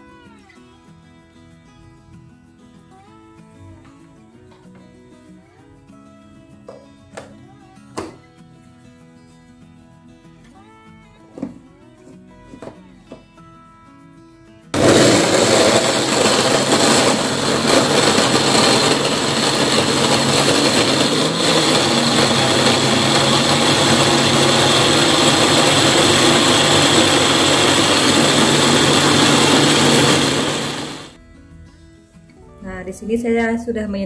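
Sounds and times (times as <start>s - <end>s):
blender motor running: 14.8s - 31.2s.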